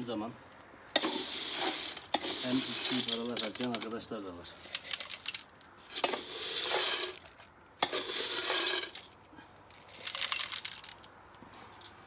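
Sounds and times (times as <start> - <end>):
kibble rattling into metal pots: 1.0 - 4.0, 4.6 - 9.2, 9.9 - 11.0.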